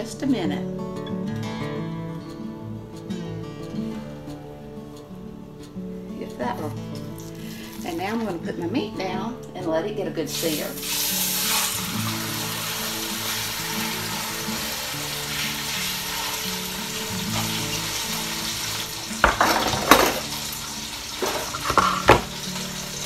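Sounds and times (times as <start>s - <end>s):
meat sizzling in hot oil: 7.2s - 8.0s, 10.3s - 23.0s.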